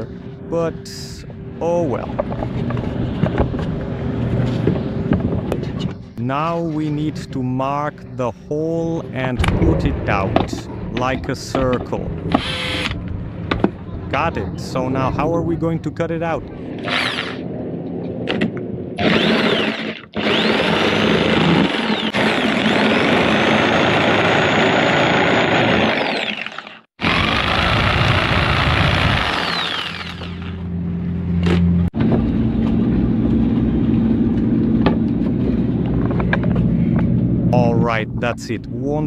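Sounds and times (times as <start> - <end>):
jigsaw cutting plywood: 16.8 - 17.4, 19.0 - 30.6.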